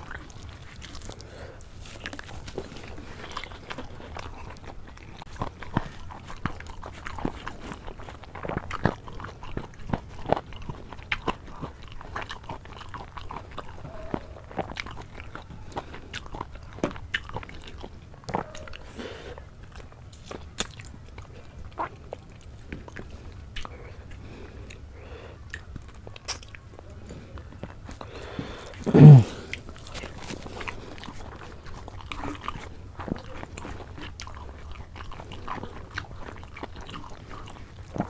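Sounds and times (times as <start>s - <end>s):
mouth clicks and crunches: 0.0s - 38.0s
person chewing food: 0.0s - 38.0s.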